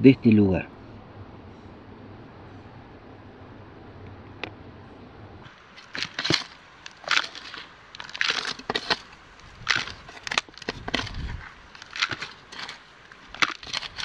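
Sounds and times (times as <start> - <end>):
rocks and gravel crunching: 5.5 - 14.0.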